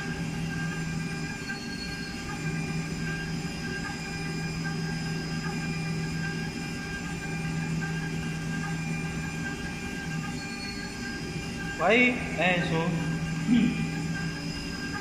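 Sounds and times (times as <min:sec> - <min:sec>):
milling machine spindle whine: 0:00.0 - 0:15.0.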